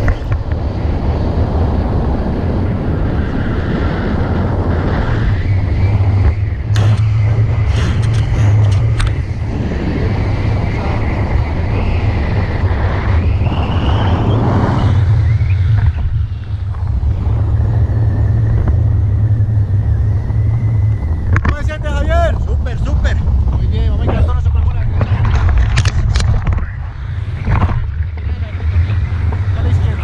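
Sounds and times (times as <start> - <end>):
wind buffeting microphone: 0.0 - 30.0
sharp clicks: 6.7 - 9.2.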